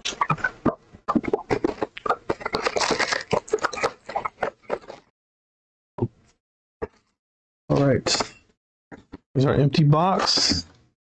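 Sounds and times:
foil packs crinkling: 2.3s - 4.1s.

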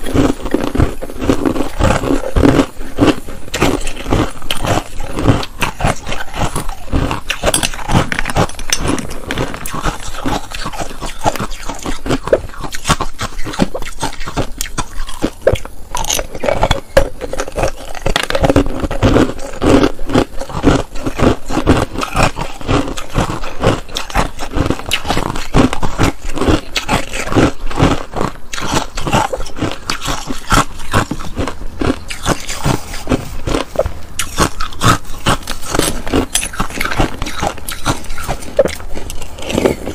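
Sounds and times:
chewing ice: 0.0s - 39.9s
metal spoon scraping a bowl: 3.5s - 12.0s.

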